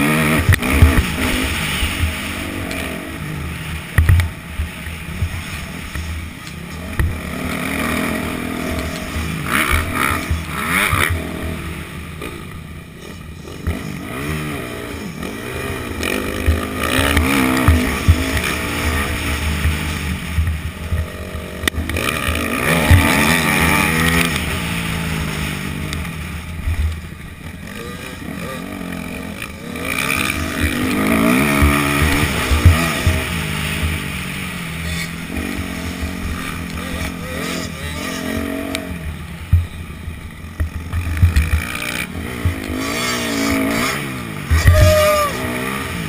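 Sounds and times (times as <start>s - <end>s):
dirt bike engine revving: 0.0s - 46.0s
other dirt bike engines: 0.0s - 46.0s.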